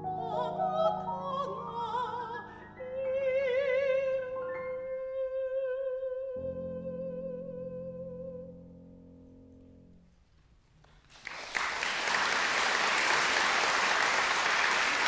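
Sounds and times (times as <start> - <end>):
audience applause: 11.0 - 15.0.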